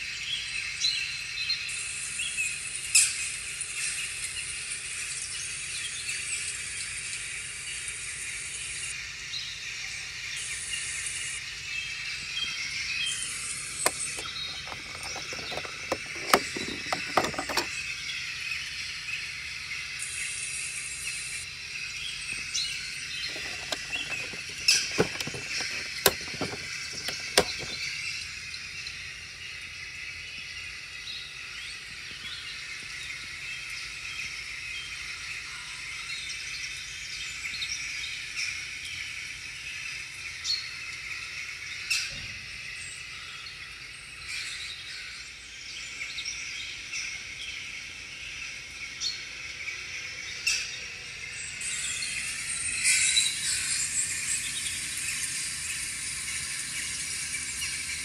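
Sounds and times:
plastic clicking: 0:13.8 - 0:17.7, 0:23.3 - 0:27.8.

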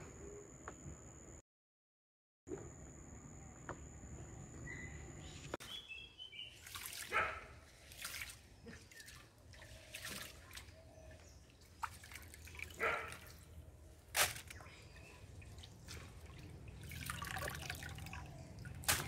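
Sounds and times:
water sloshing and splashing: 0:06.4 - 0:19.0
water dripping: 0:06.6 - 0:13.6, 0:14.4 - 0:19.0.

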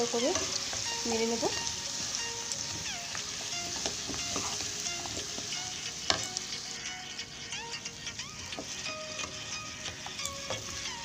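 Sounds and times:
vegetables sizzling in oil: 0:00.0 - 0:11.0
spatula scraping and clicking on pan: 0:02.5 - 0:06.6.

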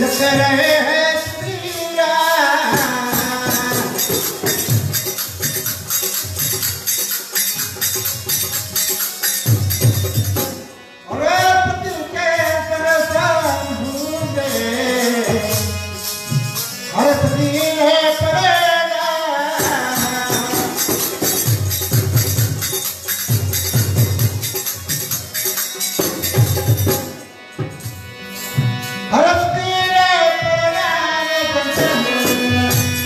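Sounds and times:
man singing: 0:00.0 - 0:04.7, 0:11.1 - 0:16.0, 0:16.9 - 0:21.3, 0:29.1 - 0:33.0
jingling hand cymbals: 0:00.0 - 0:10.8, 0:11.4 - 0:33.0
harmonium: 0:00.0 - 0:33.0.

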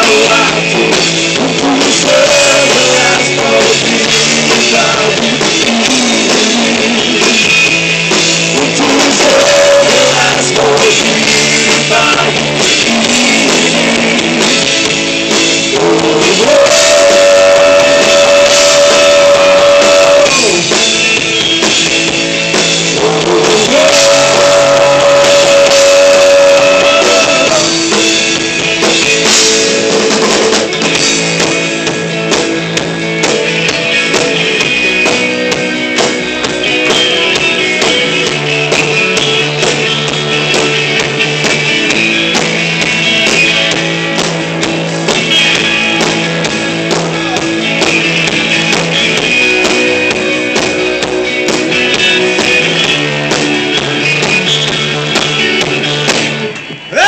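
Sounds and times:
person singing: 0:00.0 - 0:07.0, 0:08.6 - 0:14.4, 0:15.7 - 0:20.8, 0:23.0 - 0:27.8
distorted electric guitars: 0:00.0 - 0:57.0
drum kit: 0:00.0 - 0:57.0.

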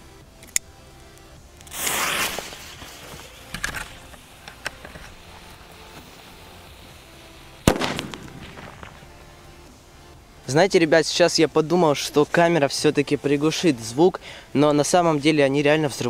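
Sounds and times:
sharp clicks of burning fuse: 0:00.2 - 0:09.6
firecracker fuse hissing: 0:00.3 - 0:10.7.

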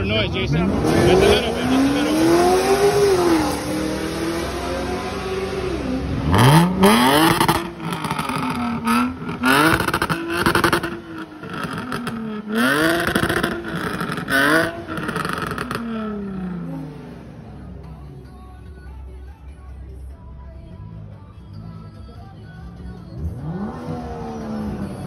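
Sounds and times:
sports car engine revving: 0:00.0 - 0:18.0, 0:23.1 - 0:25.0.

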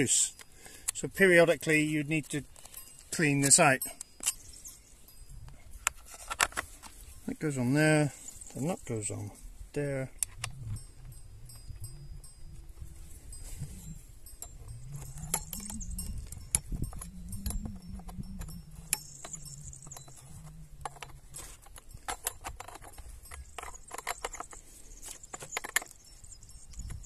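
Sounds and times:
chain links rattling: 0:00.0 - 0:27.0
wrench clicking and scraping on metal: 0:02.4 - 0:04.6, 0:13.7 - 0:26.0.

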